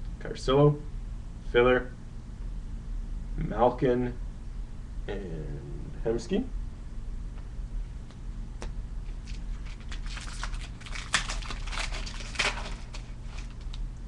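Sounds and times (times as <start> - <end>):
plastic wrapper crinkling and tearing: 9.2 - 13.8.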